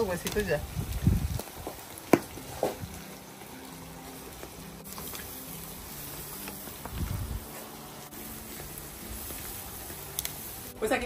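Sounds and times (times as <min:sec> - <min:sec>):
ribs sizzling on a grill: 0:00.0 - 0:11.0
metal tongs clacking on grate: 0:09.3 - 0:10.4.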